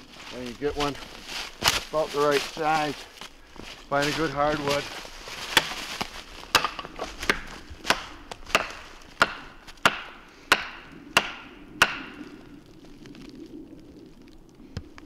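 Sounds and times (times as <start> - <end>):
wooden stick knocking on tree: 6.5 - 12.2.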